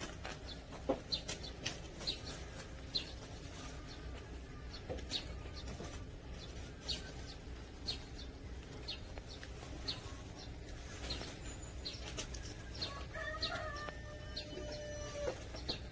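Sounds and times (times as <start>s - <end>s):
low outdoor rumble: 0.0s - 15.9s
small bird chirping: 0.0s - 15.9s
rooster crowing: 12.8s - 15.6s.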